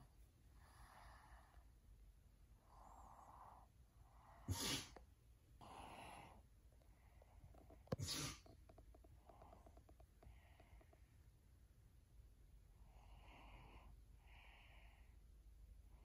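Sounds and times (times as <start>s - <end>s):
sharp sneeze-like snorts: 4.4s - 5.0s, 8.0s - 8.5s.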